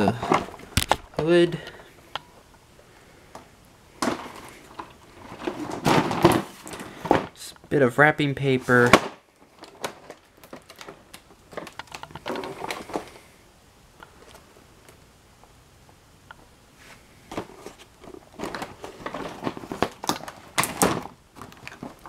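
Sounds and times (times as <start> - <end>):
cardboard box rustling: 4.0 - 7.3, 17.3 - 22.0.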